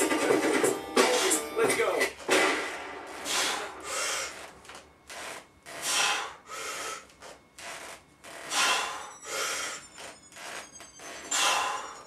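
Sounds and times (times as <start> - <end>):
person breathing hard: 3.2 - 4.5, 5.8 - 7.2, 8.5 - 9.9, 11.3 - 12.0.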